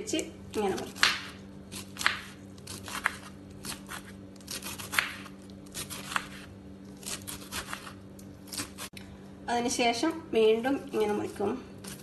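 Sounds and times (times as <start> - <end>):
steady low hum: 0.0 - 12.0
knife slicing cabbage on board: 0.6 - 8.9, 11.8 - 12.0.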